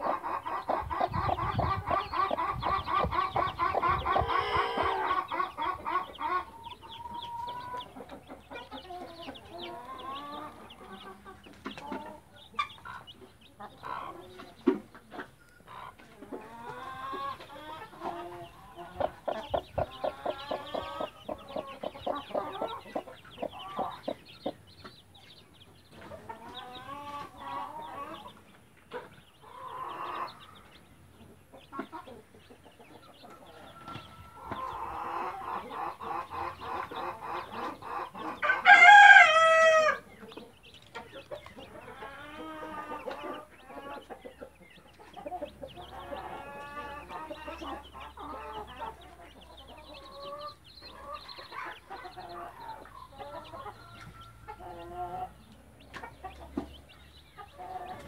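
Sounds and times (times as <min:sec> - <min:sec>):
chicks peeping: 0:00.0 - 0:58.0
hen clucking: 0:00.0 - 0:58.0
rooster crowing: 0:38.4 - 0:40.0.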